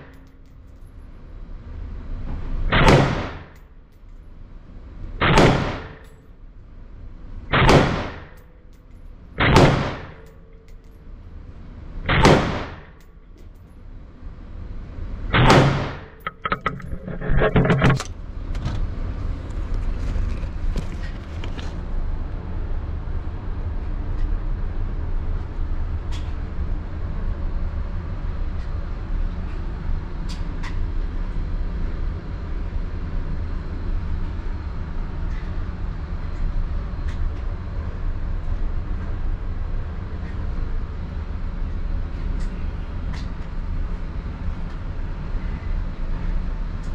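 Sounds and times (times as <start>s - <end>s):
rifle shots ringing indoors: 2.7s - 3.7s, 5.2s - 6.3s, 7.5s - 8.8s, 9.4s - 10.9s, 12.1s - 13.1s, 15.3s - 16.5s
rattle of clicks: 16.2s - 18.2s.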